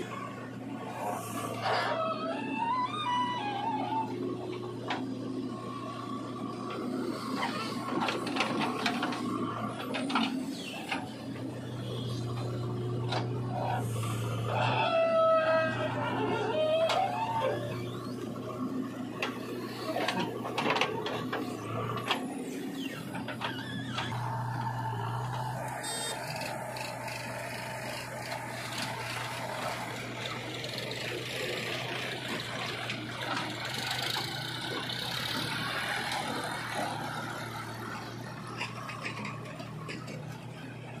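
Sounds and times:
diesel engines running: 0:00.0 - 0:41.0.

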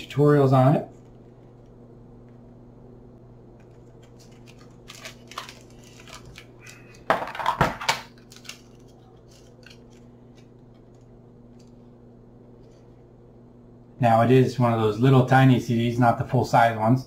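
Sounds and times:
cd sleeve crinkling: 0:03.6 - 0:11.9.

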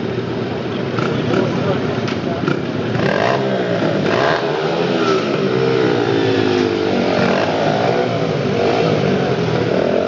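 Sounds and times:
dirt bike engine revving: 0:02.4 - 0:10.0.

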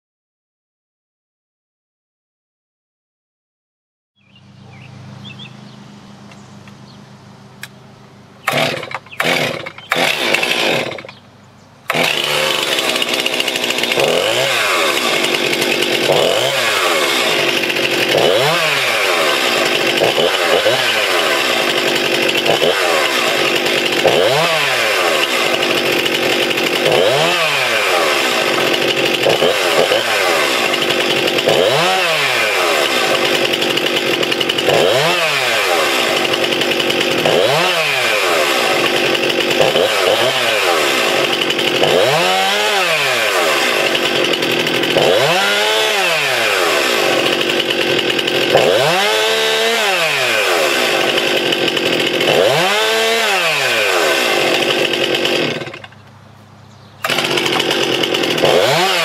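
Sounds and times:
chainsaw engine revving: 0:08.4 - 0:11.2, 0:11.8 - 0:56.1, 0:57.0 - 0:59.0.

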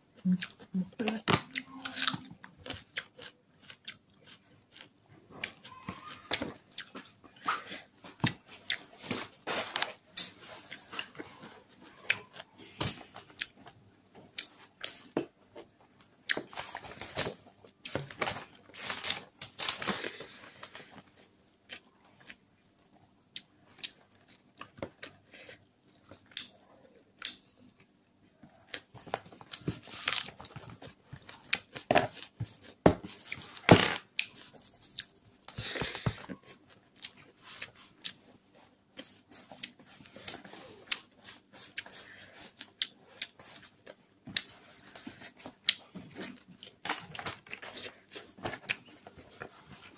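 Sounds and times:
chewing and mouth sounds: 0:01.4 - 0:07.1.

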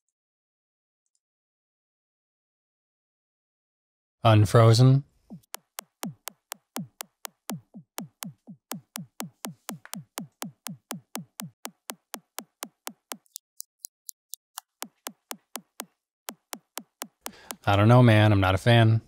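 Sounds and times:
downward-sweeping drum thumps: 0:05.3 - 0:13.2, 0:14.8 - 0:17.6
repeating clicks: 0:05.3 - 0:13.4, 0:14.8 - 0:17.7.

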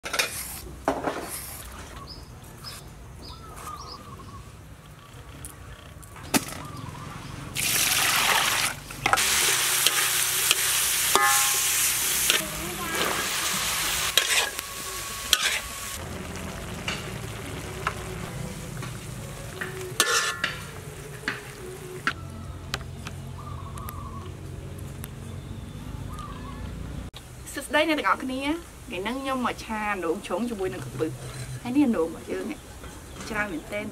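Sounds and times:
food sizzling in a wok: 0:09.1 - 0:22.1.

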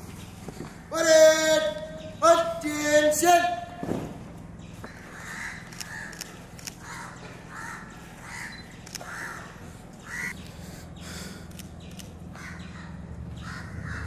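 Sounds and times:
low hum: 0:00.0 - 0:14.0
crows cawing: 0:04.8 - 0:11.4, 0:12.3 - 0:14.0
sharp clicks: 0:05.7 - 0:06.8, 0:11.4 - 0:12.2.

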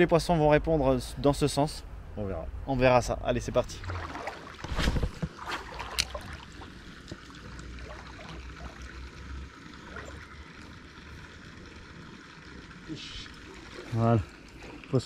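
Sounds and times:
small river rushing: 0:03.6 - 0:15.0.

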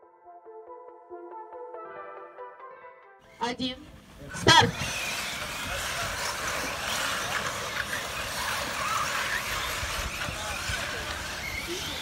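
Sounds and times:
rc car motors whirring: 0:03.9 - 0:12.0
rc car motor whines: 0:04.0 - 0:12.0.

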